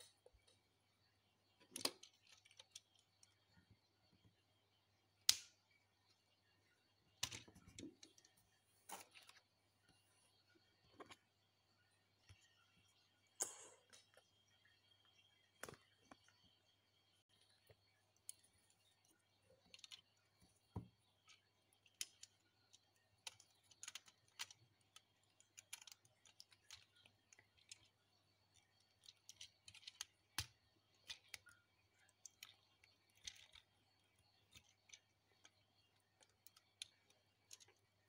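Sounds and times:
plastic toy pieces clicking: 0:21.2 - 0:37.9.

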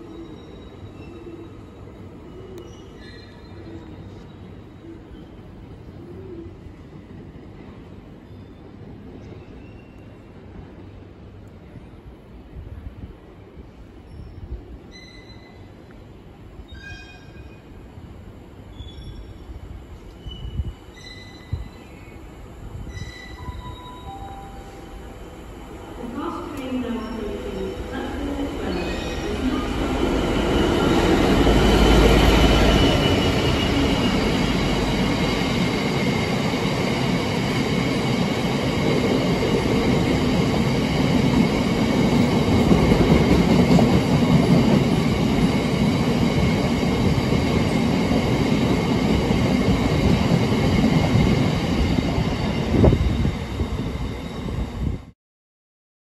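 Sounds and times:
diesel locomotive passing: 0:22.3 - 0:55.0.

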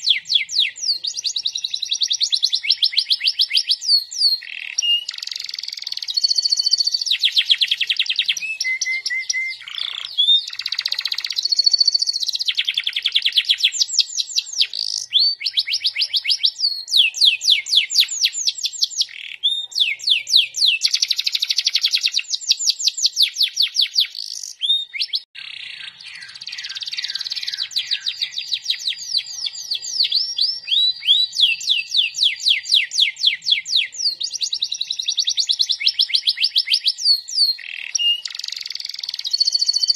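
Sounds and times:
canary singing trills: 0:00.0 - 0:39.9.

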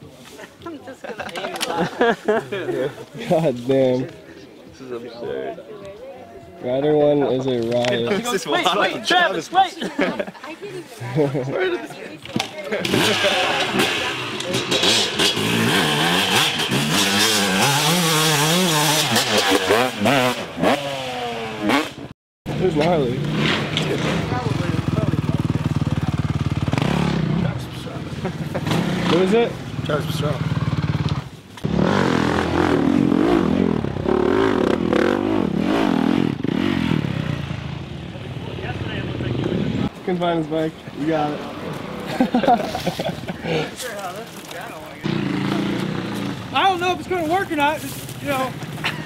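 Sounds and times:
dirt bike engine revving: 0:12.8 - 0:39.9, 0:45.0 - 0:46.9.

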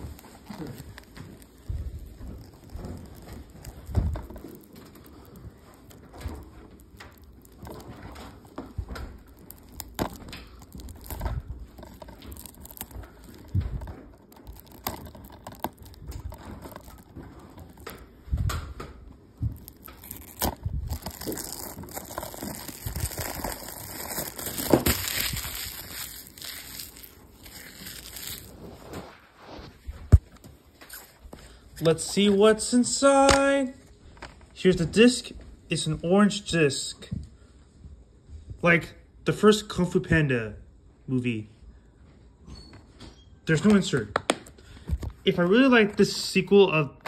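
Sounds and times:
plastic wrap crinkling: 0:00.0 - 0:34.5.

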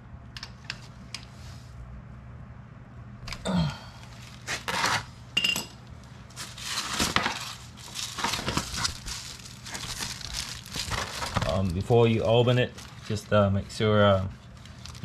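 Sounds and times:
plastic mailer crinkling: 0:06.3 - 0:15.0.

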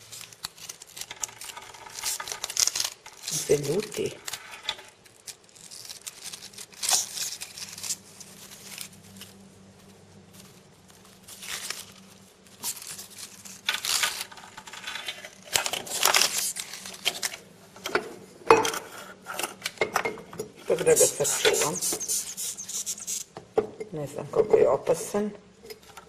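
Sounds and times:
plastic bag crinkling: 0:00.0 - 0:17.6.

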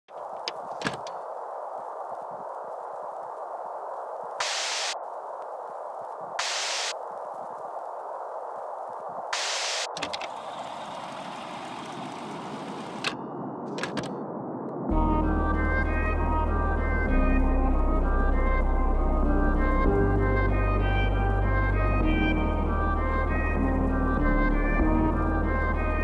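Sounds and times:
steady hiss: 0:00.1 - 0:13.0.

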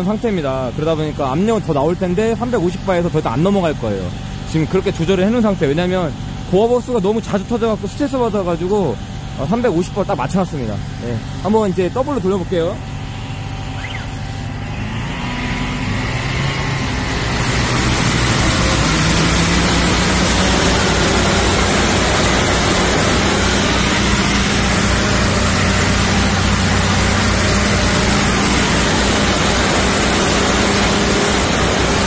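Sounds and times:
drain jetter engine: 0:00.0 - 0:32.0
hiss of water jets: 0:16.9 - 0:32.0.

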